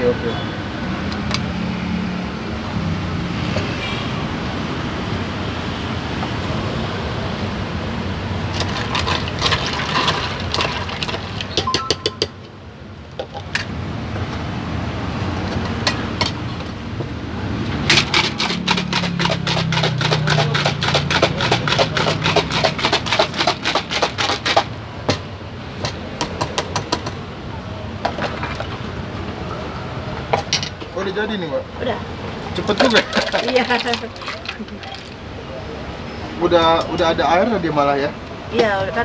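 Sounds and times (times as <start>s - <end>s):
ice clinking against metal cup: 8.5s - 12.6s, 17.9s - 24.7s, 32.6s - 35.2s
ice rattling in metal shaker: 8.6s - 11.6s, 17.9s - 24.6s, 32.7s - 35.2s.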